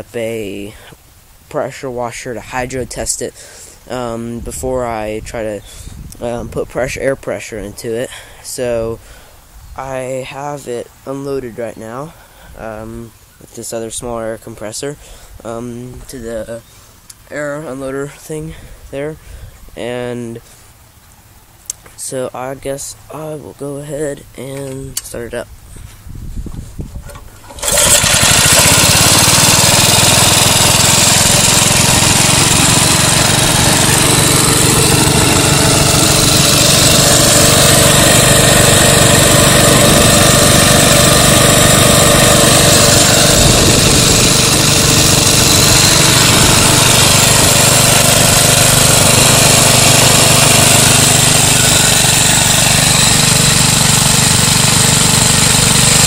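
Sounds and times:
gasoline engine running: 27.0 - 56.0
air compressor spinning: 27.2 - 56.0.

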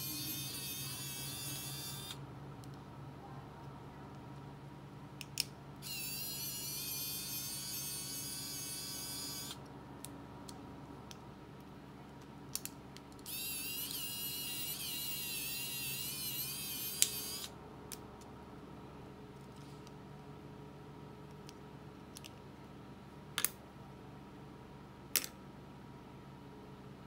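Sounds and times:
electric screwdriver motor whine: 0.0 - 2.2, 5.8 - 9.6, 13.3 - 17.5.

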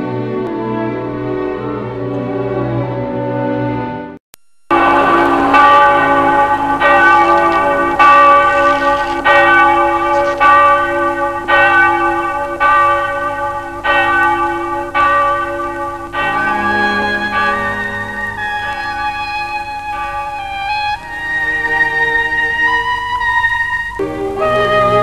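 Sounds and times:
low held tone: 4.4 - 10.4
bell tolling slowly: 4.7 - 25.0.

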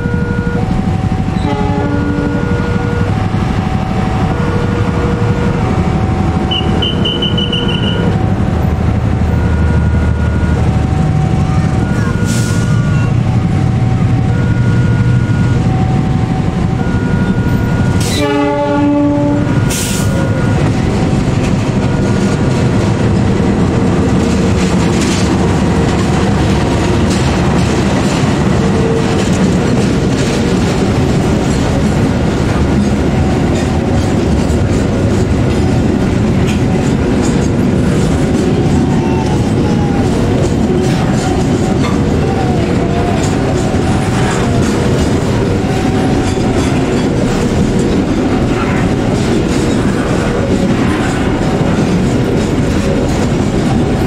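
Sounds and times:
locomotive horn blast: 0.0 - 21.1
two-tone crossing alarm: 0.0 - 50.6
diesel locomotive running: 0.0 - 54.0.

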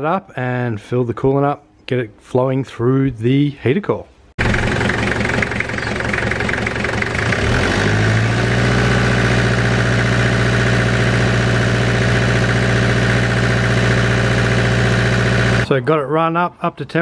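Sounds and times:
diesel engine idling: 4.4 - 15.6.

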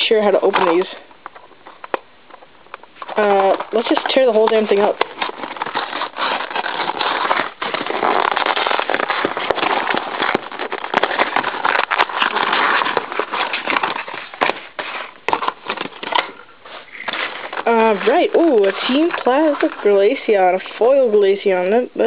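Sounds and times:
cardboard packaging being torn: 2.7 - 20.2.

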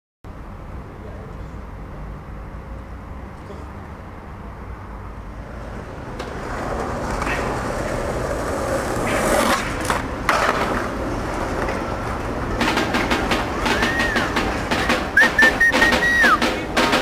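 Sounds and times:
skateboard wheels rolling on concrete: 2.3 - 17.0
skateboard clacks: 5.4 - 17.0.

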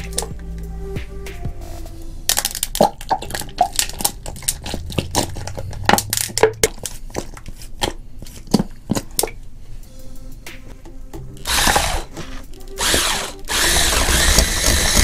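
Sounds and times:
plastic bottle crinkling: 2.3 - 9.4.

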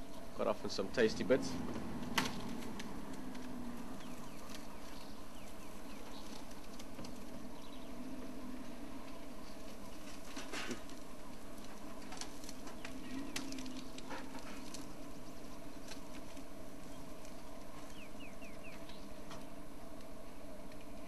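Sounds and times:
scattered clicks and crackles: 0.0 - 21.0
steady low hum: 0.0 - 21.0
bird chirping: 1.0 - 9.8, 12.6 - 15.0, 16.8 - 19.2.

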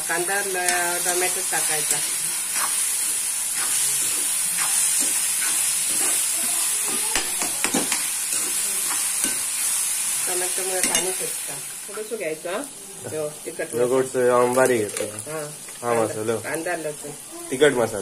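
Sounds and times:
vegetables sizzling in oil: 0.0 - 18.0
spatula scraping a pan: 1.6 - 9.5.

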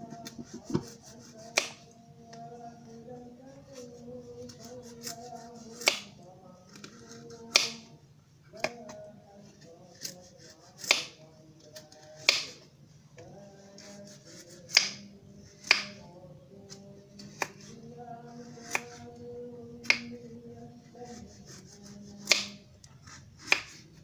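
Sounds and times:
knife cutting squash peel: 0.1 - 1.8, 4.5 - 6.1, 10.0 - 11.2, 18.6 - 19.0, 21.1 - 23.9.

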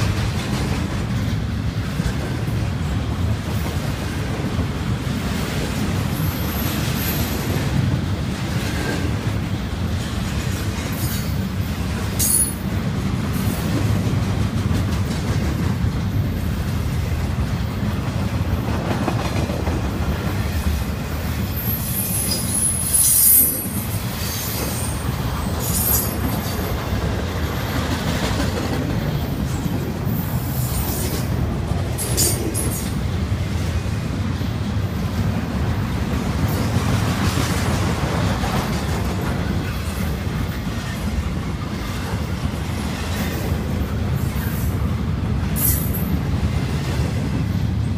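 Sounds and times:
freight train wheels rumbling: 0.0 - 47.9
high-pitched wheel squeals: 21.6 - 23.7.

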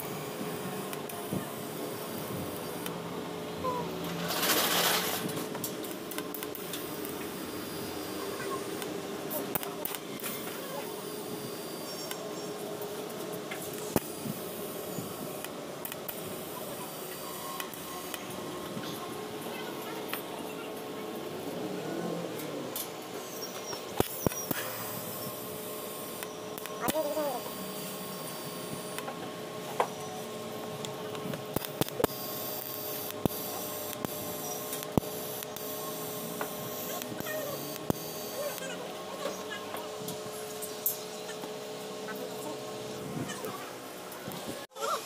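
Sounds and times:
welding arc hissing: 0.0 - 3.1, 4.1 - 18.5, 23.1 - 29.8, 31.3 - 39.6
sharp clicks: 26.2 - 27.0.

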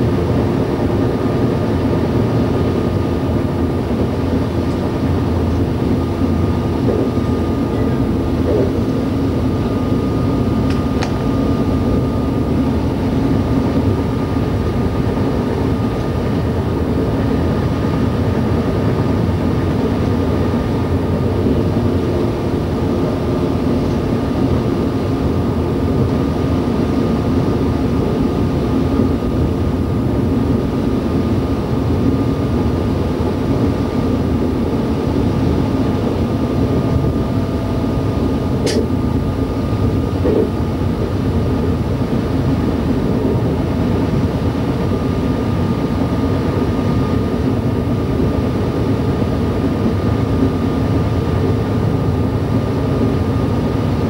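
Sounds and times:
train engine drone: 0.0 - 54.0
wheels rumbling on rails: 0.0 - 54.0
short click: 38.6 - 38.9.

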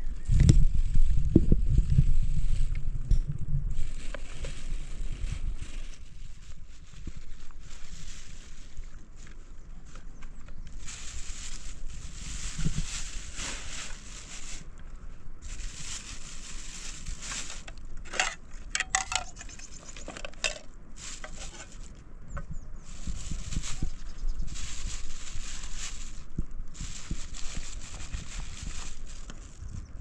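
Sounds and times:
light metallic clinks and rattles: 18.1 - 21.6.

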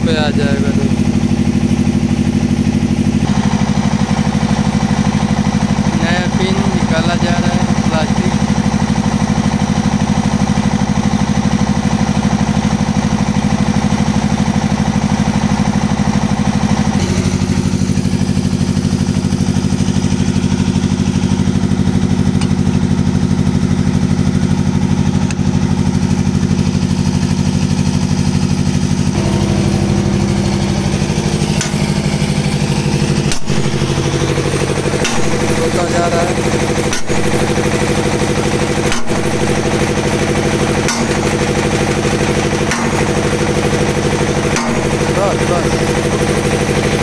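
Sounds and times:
excavator diesel engine idling: 0.0 - 47.0
sharp knock: 33.3 - 33.7, 35.0 - 35.4, 36.9 - 37.2, 38.9 - 39.2, 40.9 - 41.3, 42.7 - 43.1, 44.6 - 45.0.

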